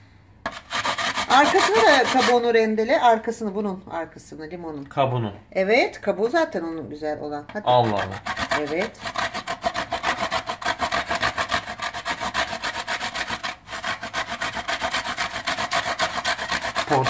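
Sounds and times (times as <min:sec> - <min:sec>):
lemon peel grating: 0:00.5 - 0:02.4, 0:07.7 - 0:17.0.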